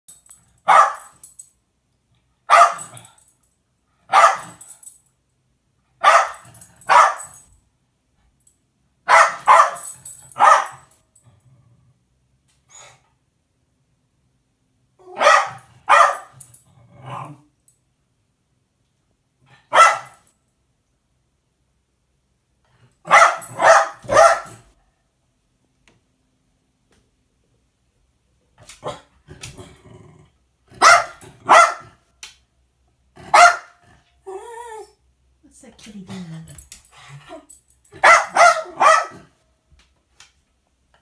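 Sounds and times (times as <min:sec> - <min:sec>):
dog barking: 0:00.6 - 0:01.1, 0:02.5 - 0:03.0, 0:04.1 - 0:04.6, 0:06.0 - 0:07.4, 0:09.1 - 0:10.9, 0:15.1 - 0:16.4, 0:19.6 - 0:20.2, 0:23.0 - 0:24.7, 0:30.8 - 0:32.0, 0:33.2 - 0:33.8, 0:38.0 - 0:39.4.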